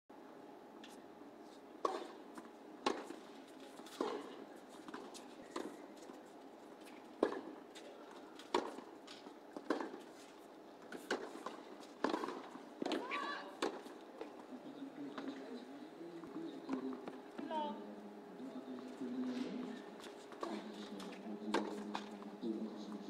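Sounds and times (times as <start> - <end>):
racket hitting tennis ball: 1.8 - 2.2, 2.8 - 3.2, 3.8 - 5.7, 8.4 - 10.1, 10.9 - 13.9
tennis ball bouncing: 1.8 - 3.2, 7.2 - 7.6, 8.4 - 10.2, 10.8 - 14.3, 20.3 - 22.1.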